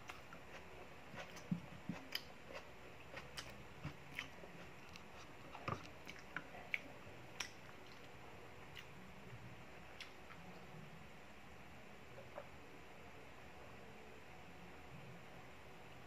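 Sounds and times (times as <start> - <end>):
soft chewing: 0.0 - 10.8.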